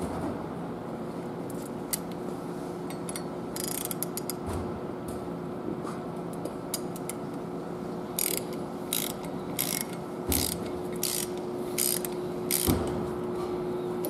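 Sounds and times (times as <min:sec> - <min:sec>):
socket ratchet clicking: 0:03.1 - 0:04.4, 0:08.2 - 0:12.8.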